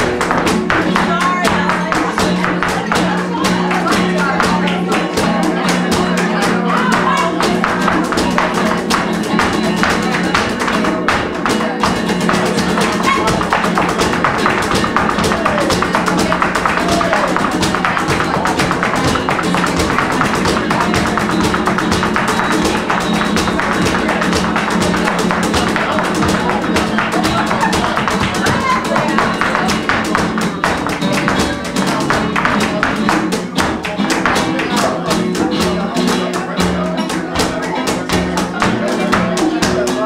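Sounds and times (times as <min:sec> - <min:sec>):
cajon drumming: 0:00.0 - 0:40.0
flamenco guitar: 0:00.0 - 0:40.0
handclaps: 0:00.0 - 0:40.0
dancer's footwork taps: 0:06.8 - 0:36.2.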